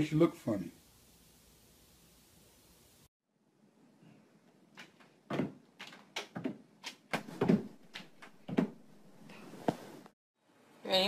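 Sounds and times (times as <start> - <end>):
door banging and rattling: 5.3 - 6.6, 7.2 - 9.2.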